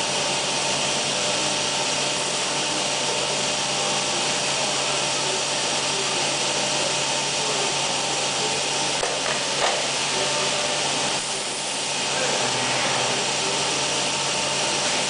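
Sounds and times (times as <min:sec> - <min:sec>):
router machine hiss and hum: 0:00.0 - 0:15.0.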